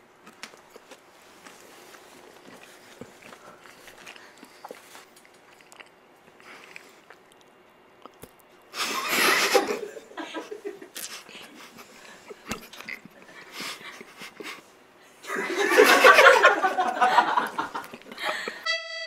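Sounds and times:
chewing chocolate: 0.2 - 8.7, 12.4 - 13.2
snickers and breaths: 8.7 - 15.7, 17.0 - 18.7
stifled laughter: 15.2 - 18.7.

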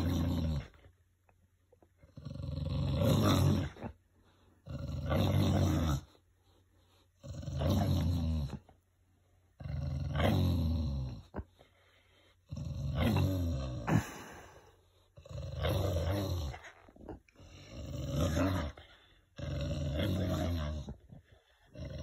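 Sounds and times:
dog play-growling: 0.0 - 1.0, 2.0 - 4.0, 4.6 - 6.2, 6.9 - 8.8, 9.6 - 11.7, 12.4 - 14.1, 15.0 - 22.0.

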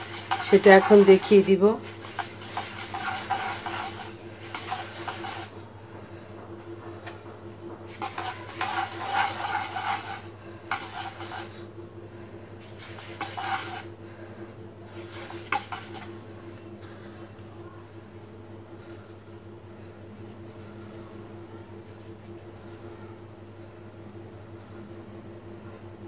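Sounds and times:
hand rubbing a wooden board: 0.0 - 5.5, 7.9 - 11.6, 12.6 - 13.9.

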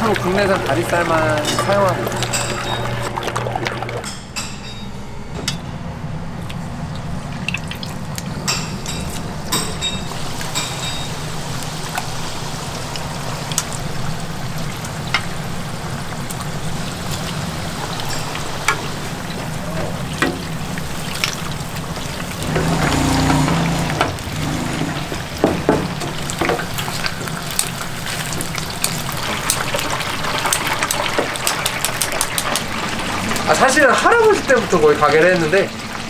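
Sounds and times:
chicken sizzling in hot oil: 0.0 - 3.4, 6.6 - 36.0
low hum: 0.0 - 25.4.

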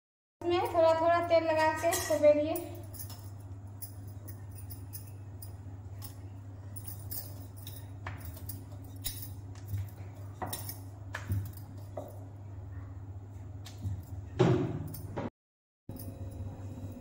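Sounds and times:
bangles clinking: 0.5 - 12.3.

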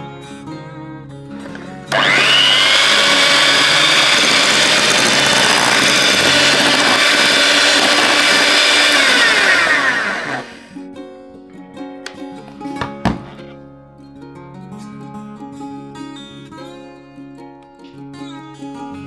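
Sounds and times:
electric hand mixer whine: 1.5 - 10.8.

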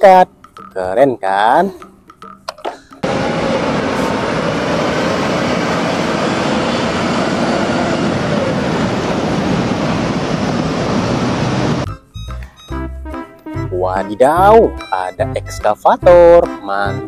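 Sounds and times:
buses driving past: 3.0 - 12.4.

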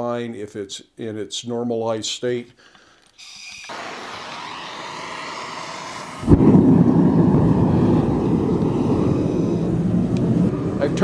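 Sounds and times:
gas torch hissing: 3.2 - 10.6
burner roaring: 3.7 - 11.0
burner lighting thump: 6.2 - 7.4.

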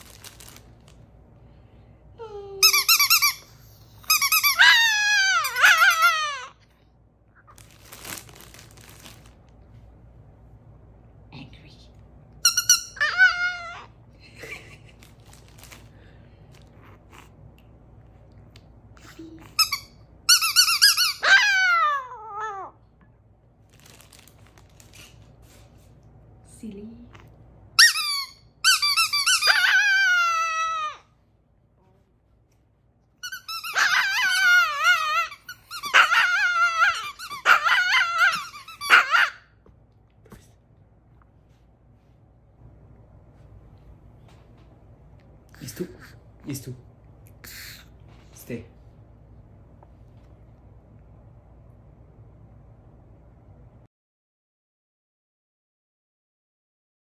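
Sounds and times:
squeaky toy balls squeaking: 2.6 - 6.4, 12.4 - 13.5, 19.6 - 21.3, 27.8 - 30.7, 33.2 - 39.4
dog howling: 4.6 - 6.6, 13.0 - 13.9, 21.2 - 22.8, 29.4 - 31.1, 33.7 - 39.5.

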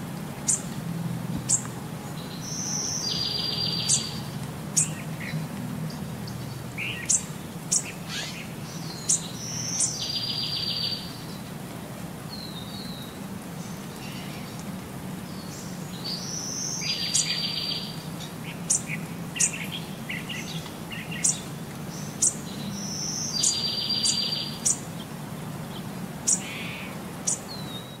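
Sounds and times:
bird chirping and trilling: 2.3 - 5.0, 6.8 - 11.1, 22.0 - 24.8.

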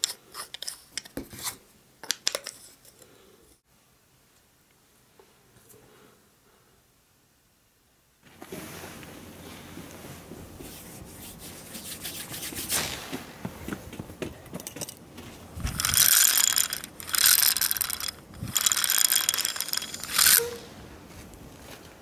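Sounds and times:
soft handling noise: 8.2 - 11.6
toy rotor whirring: 15.6 - 20.6.

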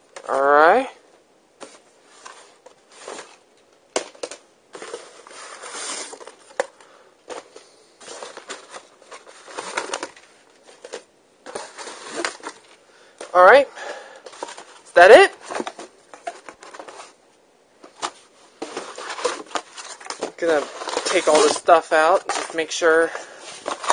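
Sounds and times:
packing material rustling: 1.6 - 12.8, 17.8 - 23.9.

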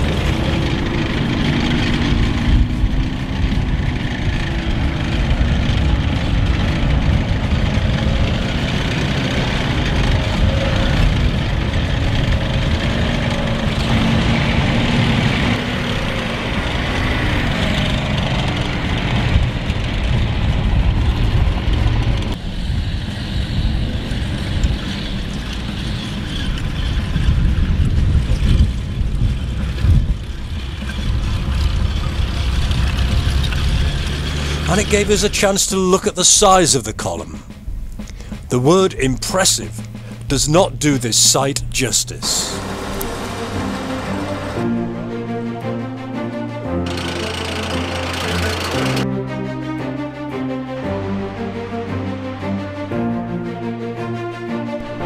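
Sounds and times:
rough tracks clatter: 0.0 - 49.1
heavy engine rumble: 0.0 - 55.0.

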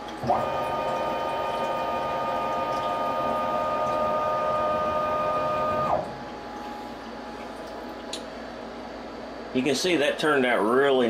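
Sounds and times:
stepper motors whining: 0.2 - 6.1.

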